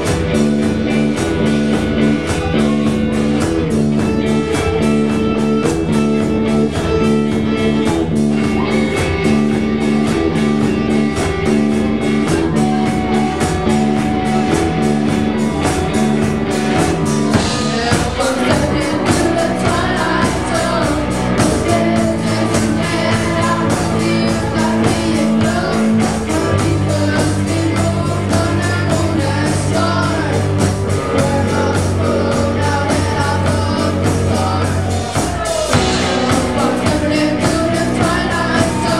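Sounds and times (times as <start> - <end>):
bass guitar: 0.0 - 38.9
drum kit: 0.0 - 38.9
electric guitars: 0.0 - 38.9
lead singer: 0.0 - 38.9.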